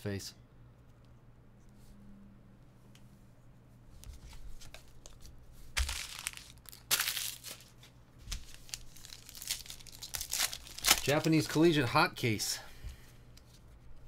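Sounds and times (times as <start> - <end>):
plastic wrapper crinkling and tearing: 5.8 - 11.6.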